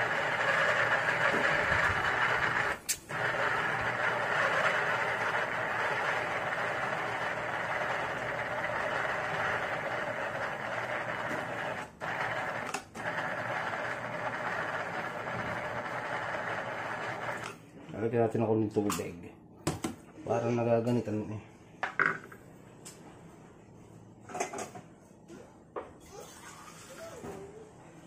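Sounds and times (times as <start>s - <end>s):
food processor motor running: 0.0s - 17.6s.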